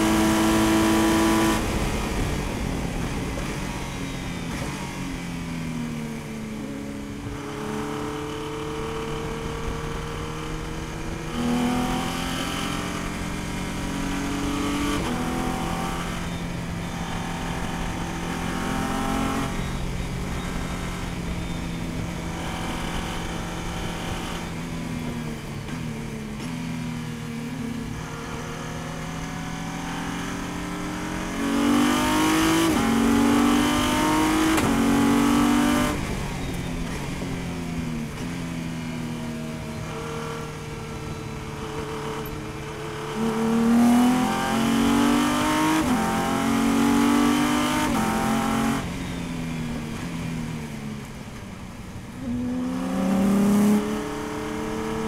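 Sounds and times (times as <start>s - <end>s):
race car engine accelerating: 27.9s - 37.0s, 52.1s - 55.0s.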